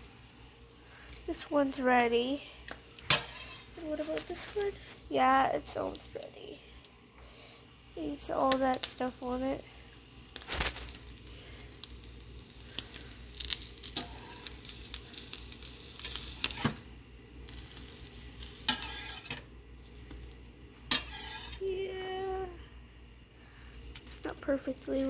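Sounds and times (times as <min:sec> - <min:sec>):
eggs sizzling on a griddle: 0:00.0 - 0:25.0
metal spatula scraping a pan: 0:03.1 - 0:04.5, 0:16.0 - 0:16.8, 0:18.4 - 0:19.5, 0:20.9 - 0:21.6.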